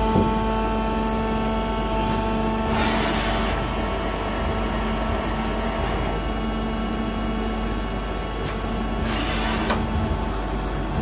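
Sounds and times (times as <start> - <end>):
lathe machine hum: 0.0 - 11.0.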